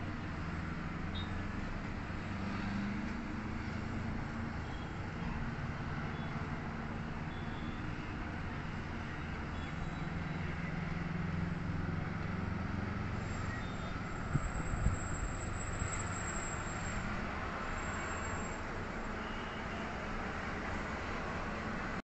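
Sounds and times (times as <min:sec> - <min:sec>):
distant road traffic rumble: 0:00.0 - 0:22.0.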